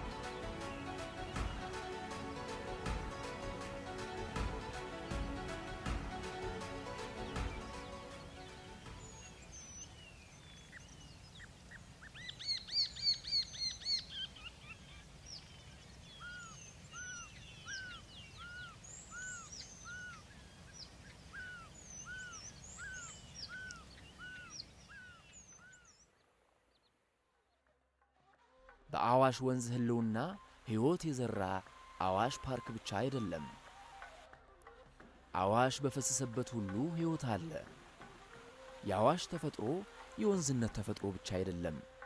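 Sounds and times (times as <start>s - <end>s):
high bird chirps: 16.2s - 26.0s.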